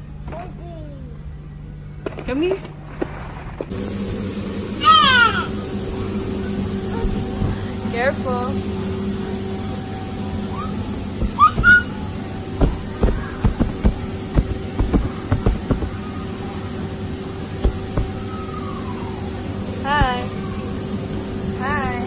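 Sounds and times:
steady hum: 2.7 - 22.0
high squeals: 9.0 - 20.9
dull knocks and thumps: 11.2 - 11.9, 12.6 - 16.0, 17.6 - 18.3.

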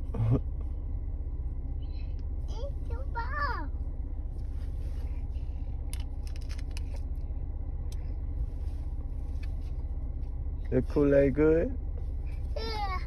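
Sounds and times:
car cabin rumble: 0.0 - 13.0
light clicks and rustles: 4.3 - 10.8.

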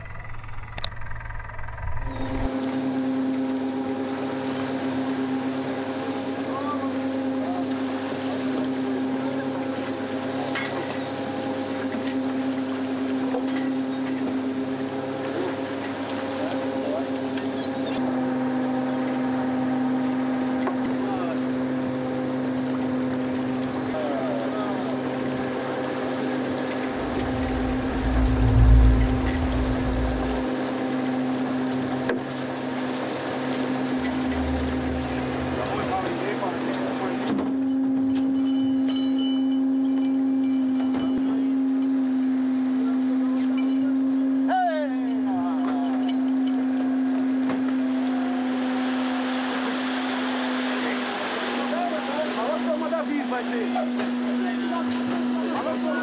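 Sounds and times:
low rumble: 0.0 - 2.5, 26.6 - 30.7, 33.8 - 36.6
boat machinery droning: 0.0 - 56.0.

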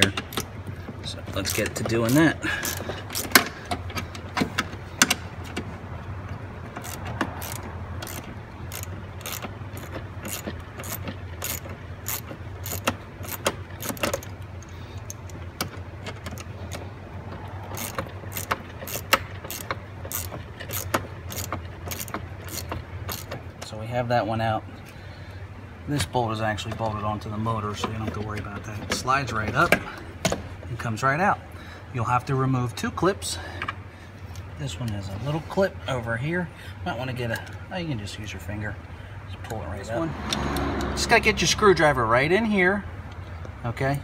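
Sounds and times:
ratchet clicking: 1.4 - 5.2, 6.7 - 16.8, 17.7 - 23.4.

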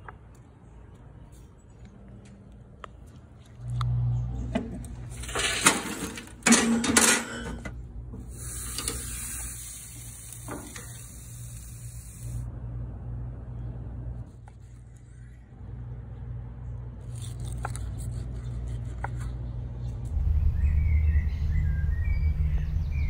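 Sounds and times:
meat sizzling on a grill: 8.3 - 12.4.

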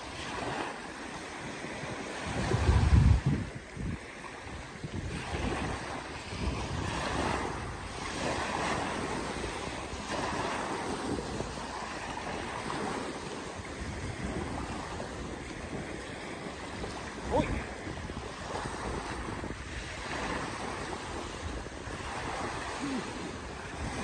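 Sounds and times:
waves breaking on pebble beach: 0.0 - 24.0
wind rumbling on microphone: 0.0 - 24.0.

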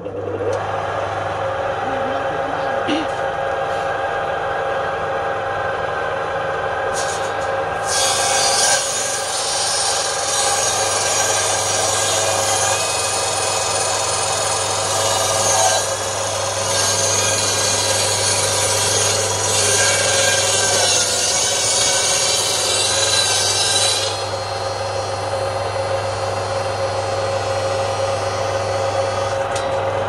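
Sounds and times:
table saw humming: 0.0 - 30.0
saw cutting through log: 6.9 - 29.5.

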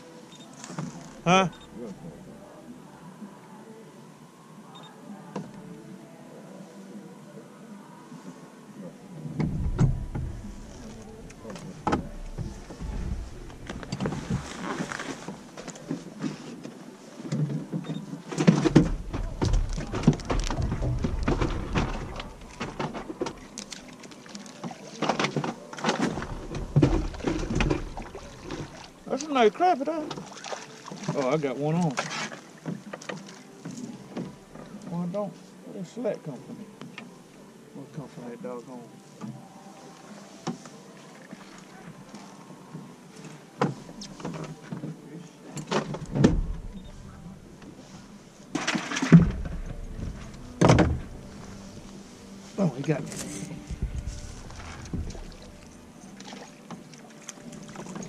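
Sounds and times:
low rumble: 9.4 - 14.6, 53.3 - 56.0
fishing gear clicks and knocks: 9.5 - 29.4, 43.1 - 58.0
knocks on boat deck: 53.7 - 55.6.

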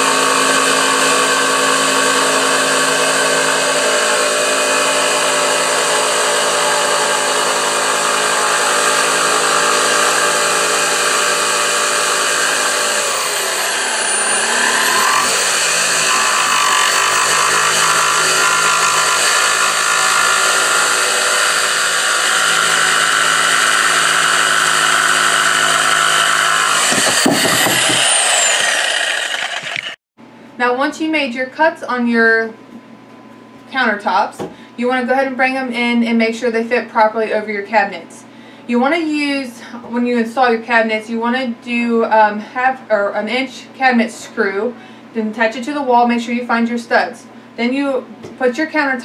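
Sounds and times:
jigsaw cutting countertop: 0.0 - 30.0.

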